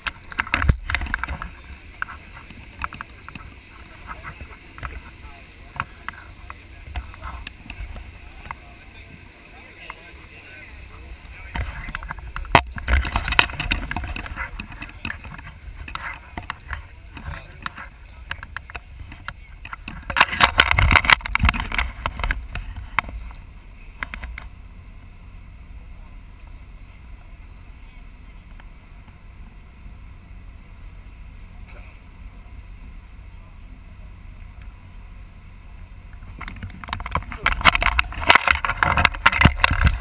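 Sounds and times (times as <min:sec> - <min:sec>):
boat low rumble: 0:00.0 - 0:40.0
camera handling knocks and rubbing: 0:11.5 - 0:23.3, 0:36.4 - 0:40.0.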